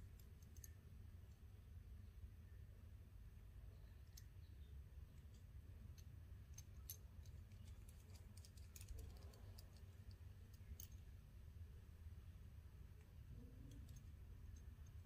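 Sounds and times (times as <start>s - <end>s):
low steady hum: 0.0s - 15.0s
light metal clicks of buckle: 0.1s - 1.4s, 5.2s - 11.1s, 13.6s - 15.0s.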